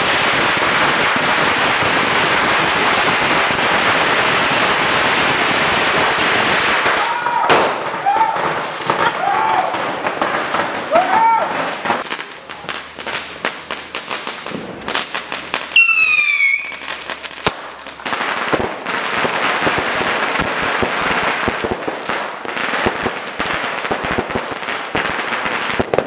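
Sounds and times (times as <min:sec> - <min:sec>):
crackle of aerial fireworks: 0:00.0 - 0:26.0
firework cracks: 0:00.0 - 0:26.0
falling firework whistle: 0:15.7 - 0:17.0.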